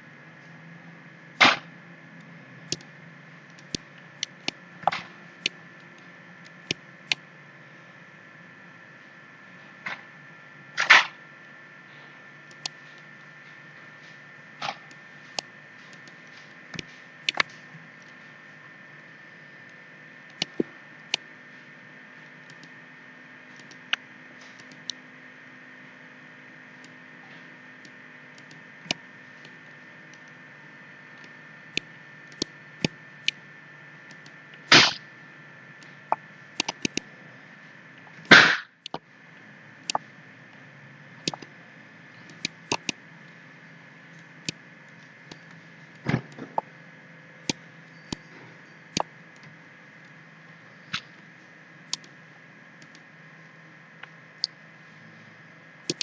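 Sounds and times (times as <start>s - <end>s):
steady hum: 0.0s - 56.0s
computer mouse clicks: 12.5s - 13.1s, 14.6s - 18.2s, 20.3s - 21.2s, 22.5s - 22.7s, 23.5s - 25.0s, 36.6s - 37.1s, 41.2s - 41.5s, 42.3s - 43.0s, 51.9s - 52.1s, 52.8s - 53.0s.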